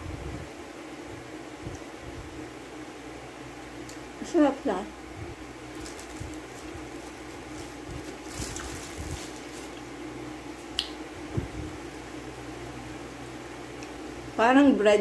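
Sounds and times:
low steady hum: 0.0s - 15.0s
plastic wrap crinkling: 5.6s - 10.7s.

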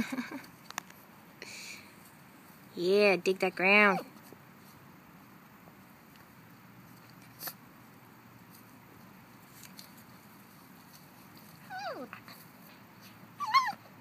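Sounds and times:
puppy whining: 11.5s - 14.0s.

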